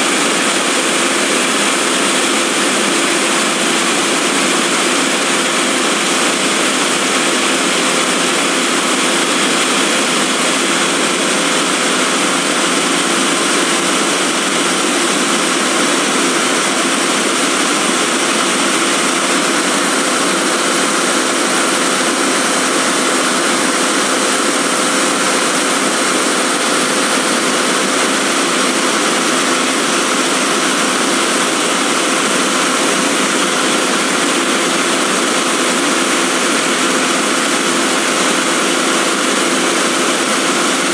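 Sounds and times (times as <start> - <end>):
diesel engine running steadily: 0.0 - 40.9.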